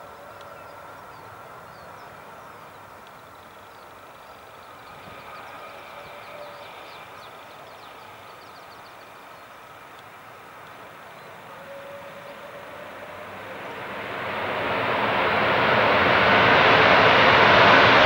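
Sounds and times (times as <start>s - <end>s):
jet engines rushing with whine: 0.0s - 18.0s.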